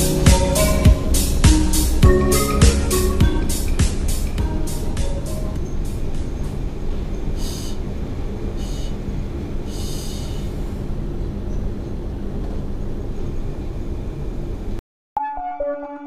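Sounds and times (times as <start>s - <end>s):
locomotive engine rumble: 0.0s - 14.8s
short hisses: 7.4s - 7.8s, 8.6s - 9.0s, 9.7s - 10.7s.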